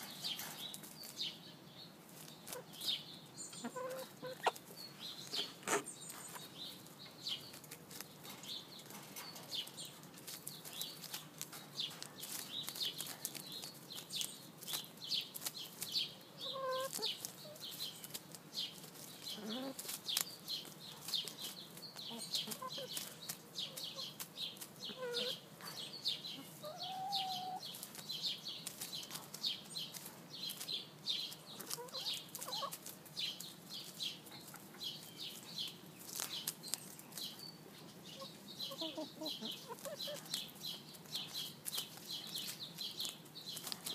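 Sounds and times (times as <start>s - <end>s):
hens pecking: 0.0s - 43.9s
hens clucking softly: 3.5s - 6.5s, 16.4s - 17.7s, 23.7s - 25.5s, 26.3s - 27.9s, 38.2s - 40.4s
rustling straw: 31.3s - 37.4s.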